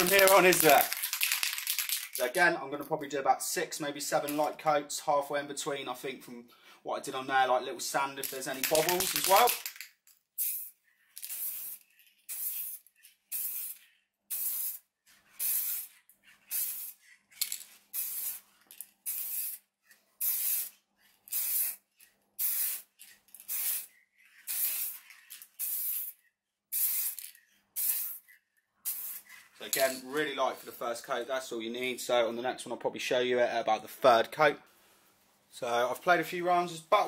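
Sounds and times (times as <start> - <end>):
spray paint can hissing: 0.0 - 2.2, 8.2 - 9.8, 10.4 - 29.5.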